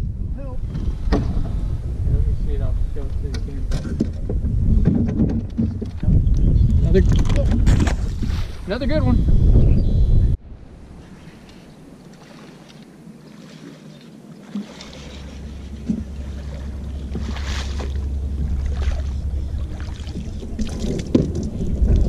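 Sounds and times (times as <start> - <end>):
wind rumble on microphone: 0.0 - 22.0
fish splashing at water surface: 12.1 - 21.6.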